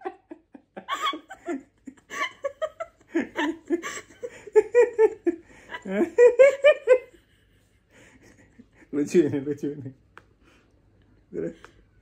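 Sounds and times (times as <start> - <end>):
people laughing heartily: 0.0 - 8.9.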